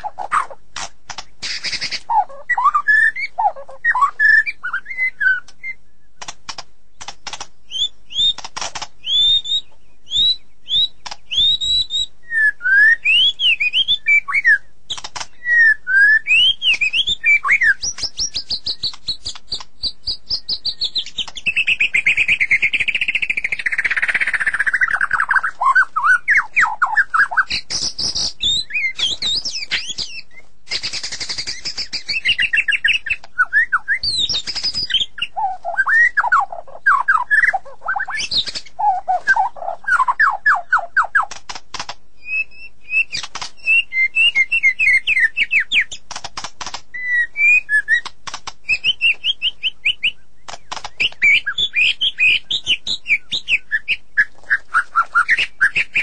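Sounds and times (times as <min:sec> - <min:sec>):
bird warbled trill: 0:00.0 - 0:05.8, 0:07.0 - 0:41.4, 0:48.7 - 0:56.0
bird clicking notes: 0:00.3 - 0:02.6, 0:05.4 - 0:09.4, 0:11.0 - 0:11.5, 0:14.9 - 0:15.7, 0:16.3 - 0:42.0, 0:42.9 - 0:53.1
bird singing whistled phrases: 0:01.4 - 0:06.1, 0:07.7 - 0:08.4, 0:09.0 - 0:41.3, 0:42.2 - 0:45.9, 0:46.9 - 0:48.1, 0:48.7 - 0:56.0.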